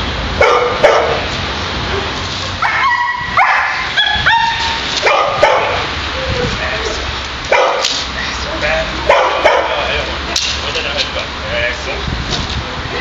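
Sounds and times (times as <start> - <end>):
dog barking: 0.4 - 1.3, 1.9 - 5.9, 7.5 - 7.9, 9.1 - 9.9
dog yelping: 1.9 - 7.9, 9.1 - 9.8.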